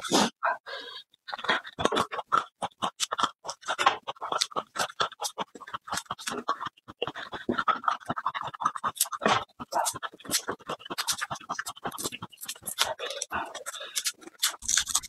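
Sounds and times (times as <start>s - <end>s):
garlic skins crackling: 12.0s - 15.0s.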